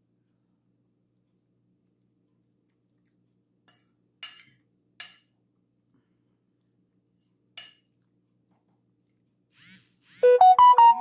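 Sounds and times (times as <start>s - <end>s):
metal fork clinking on plate: 3.7s - 5.3s.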